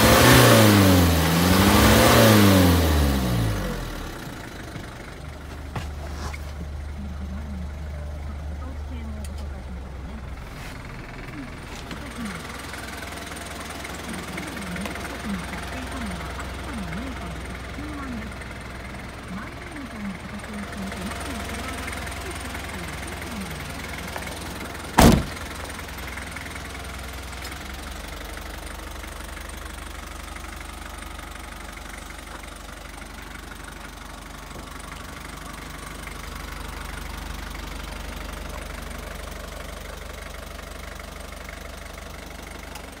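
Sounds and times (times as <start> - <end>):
truck engine idling: 0.0 - 43.0
cab door slamming: 24.9 - 25.6.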